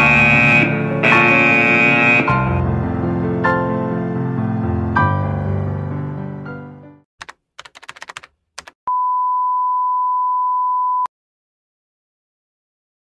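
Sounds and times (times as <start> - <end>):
music: 0.0 - 7.1
computer keyboard typing: 7.2 - 8.8.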